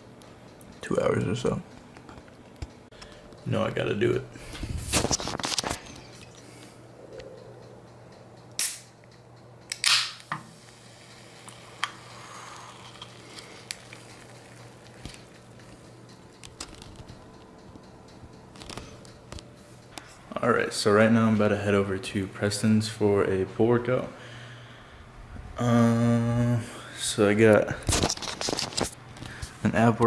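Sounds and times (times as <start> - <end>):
faint steady hum: 0.0 - 30.0
drink can pull tab snap: 8.6 - 8.9, 9.7 - 10.4
can cracking open with fizzing hiss: 9.7 - 14.4.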